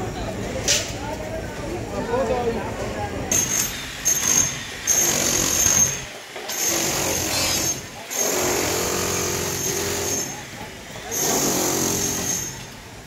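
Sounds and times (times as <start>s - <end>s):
construction machinery whining: 2.7s - 13.0s.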